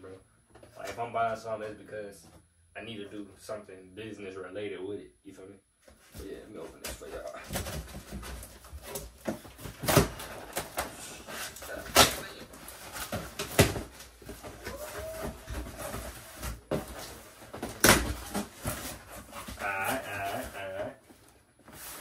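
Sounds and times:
cardboard rustling and crackling: 6.0 - 22.0
sharp cracks and knocks: 17.6 - 18.9.

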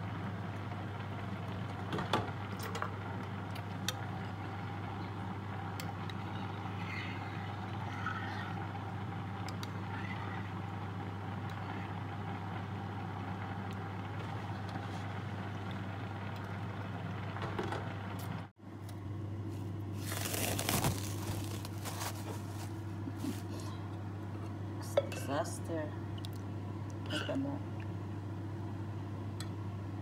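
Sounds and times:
low mechanical hum: 0.0 - 30.0
cling film crinkling: 19.9 - 23.7.

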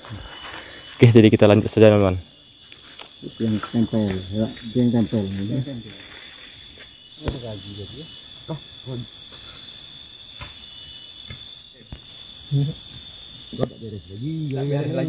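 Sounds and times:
forest insects droning: 0.0 - 15.0
shrill insect layer: 0.0 - 15.0
sharp knocks: 7.2 - 7.9.

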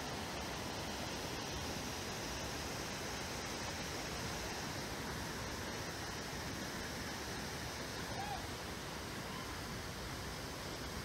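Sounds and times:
rapids and waterfall rushing: 0.0 - 11.0.

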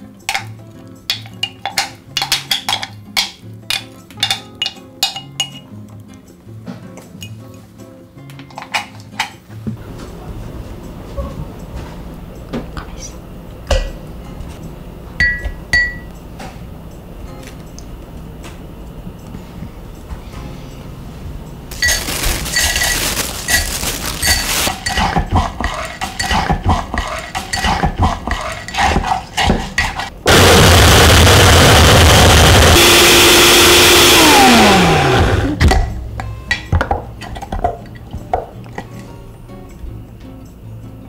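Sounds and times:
blender crushing ice: 21.7 - 25.2, 30.3 - 35.6
ice clinking against glass jar: 21.7 - 25.2.

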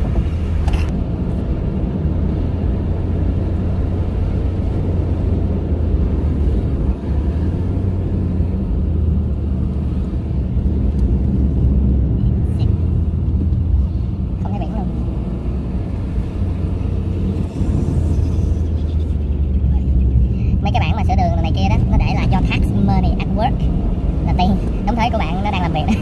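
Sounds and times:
car road and engine rumble: 0.0 - 26.0.

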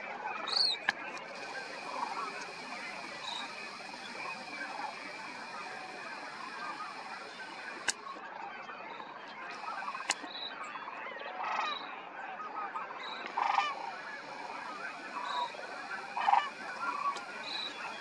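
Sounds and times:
cranes calling: 0.5 - 8.2, 9.5 - 10.4, 13.2 - 18.0.

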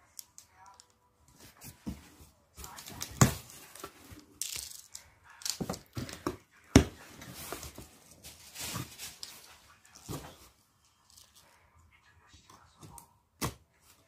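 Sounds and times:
cardboard scraping and rustling: 7.0 - 10.5.

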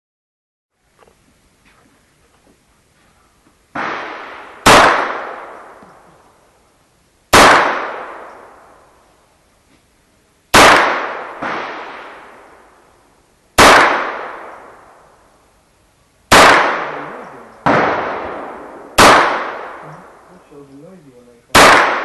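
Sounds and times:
quieter sharp bangs: 3.7 - 6.1, 7.3 - 8.9, 10.5 - 12.8, 13.6 - 15.2, 16.3 - 20.3, 21.5 - 22.0
pistol shots echoing: 3.8 - 5.8, 7.3 - 8.7, 10.5 - 12.3, 13.6 - 14.9, 16.3 - 20.2, 21.5 - 22.0.

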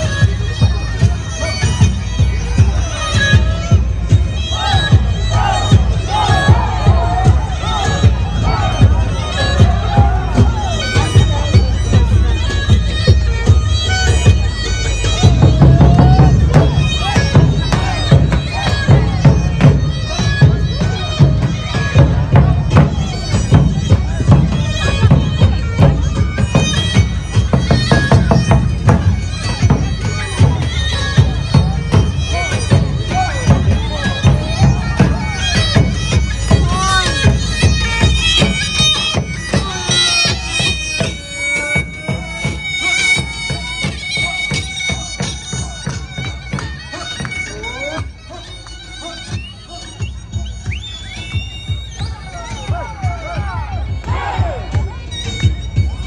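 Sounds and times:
crowd voices: 0.0 - 56.0
reed wind instrument melody: 0.0 - 56.0
drum beat: 2.2 - 14.5, 15.1 - 46.2.

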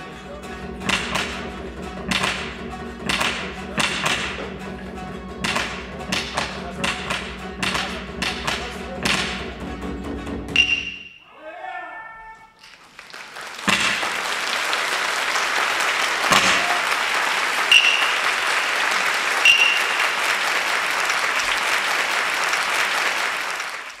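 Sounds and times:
sharp knocks: 0.8 - 4.7, 5.4 - 9.6, 13.6 - 14.2, 16.3 - 16.8
high-pitched calls: 10.6 - 12.6, 17.6 - 18.4, 19.4 - 20.2
audience applauding: 12.5 - 24.0.

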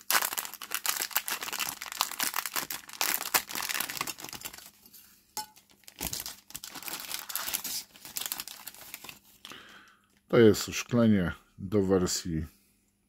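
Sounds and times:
plastic bag crinkling: 0.0 - 4.8, 5.5 - 9.6.

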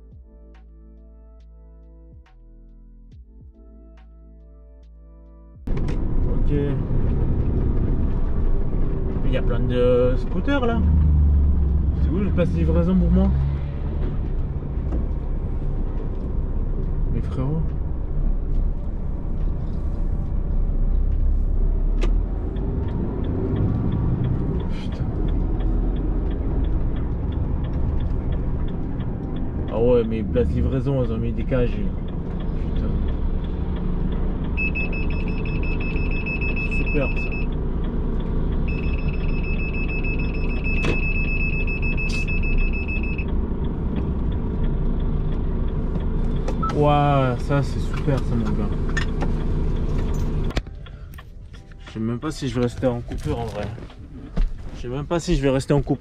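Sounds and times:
truck engine and road rumble: 5.6 - 56.0
regular ticking: 14.1 - 54.1
high electronic warning tone: 34.6 - 37.5, 38.7 - 43.3.

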